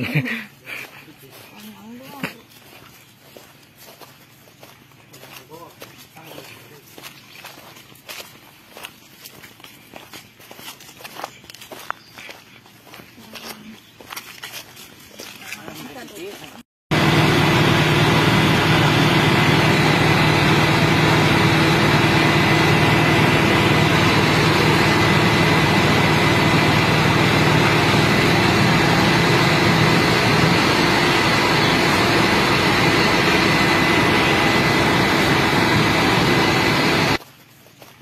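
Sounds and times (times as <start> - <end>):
truck engine drone: 16.9 - 37.2.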